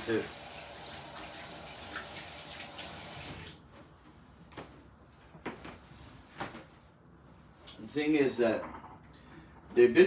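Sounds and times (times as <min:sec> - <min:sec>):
water running from a tap: 0:00.0 - 0:03.6.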